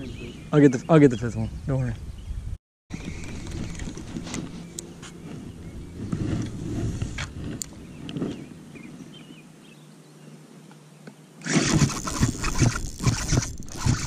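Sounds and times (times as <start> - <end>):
microphone rustling and buffeting: 1.4 - 9.5
fishing reel clicks: 11.4 - 14.0.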